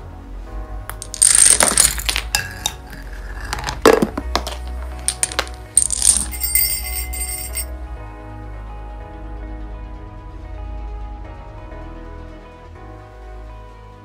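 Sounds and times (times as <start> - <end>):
background music: 0.0 - 14.0
dominoes toppling and clattering: 0.9 - 7.6.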